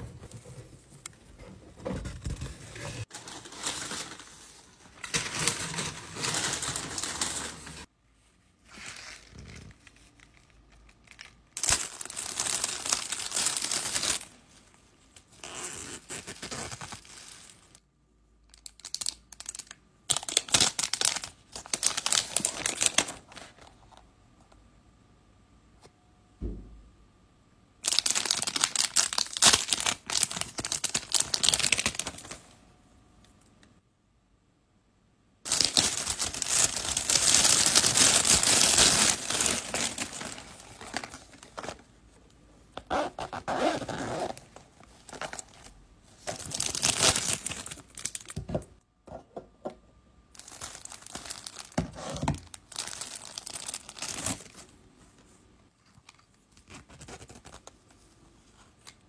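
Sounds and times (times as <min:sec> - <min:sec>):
packaging tearing and crinkling: 0:05.0 - 0:07.9, 0:11.0 - 0:14.3, 0:18.6 - 0:23.3, 0:27.8 - 0:32.4, 0:35.5 - 0:41.8, 0:43.6 - 0:48.4, 0:50.4 - 0:54.6.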